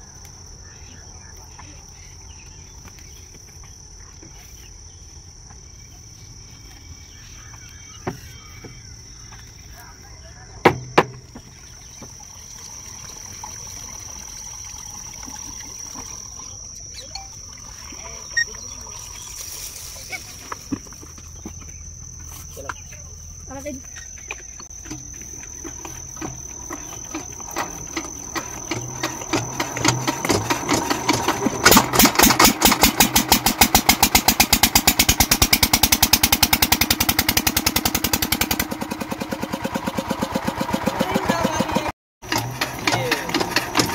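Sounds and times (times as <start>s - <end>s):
high-pitched insect drone: 5.7s - 32.2s
diesel engine starting and running: 20.6s - 43.9s.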